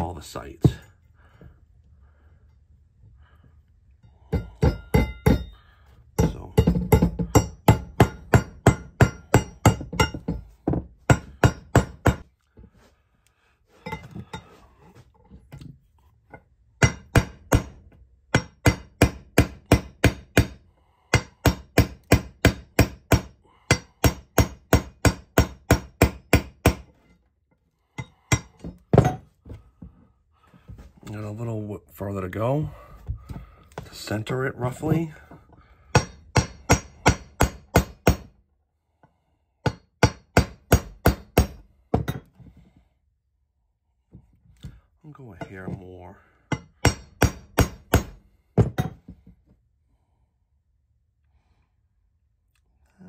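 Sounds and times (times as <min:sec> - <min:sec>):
hammer tapping metal punch: 0:04.3 - 0:05.6, 0:06.2 - 0:12.2, 0:16.8 - 0:20.6, 0:36.0 - 0:38.3.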